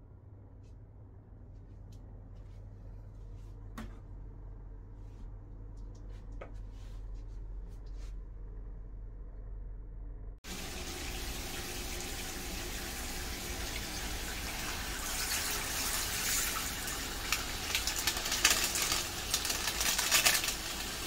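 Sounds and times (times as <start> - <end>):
tap water running into bathtub: 10.4 - 21.0
powder rustling from paper packet: 15.2 - 21.0.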